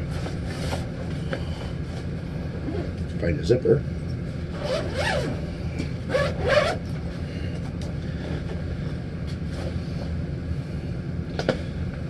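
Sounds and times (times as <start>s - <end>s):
steady low hum: 0.0s - 12.0s
zipper pulled open: 4.6s - 5.4s, 6.1s - 6.9s.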